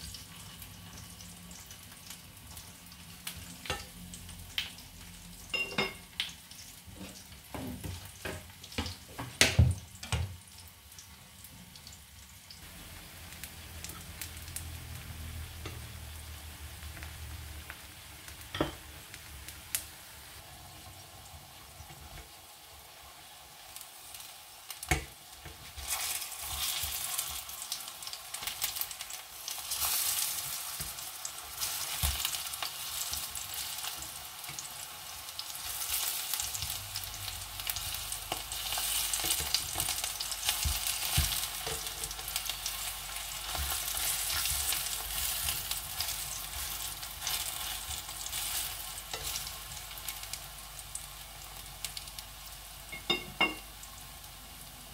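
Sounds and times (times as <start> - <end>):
food sizzling in hot oil: 0.0 - 54.9.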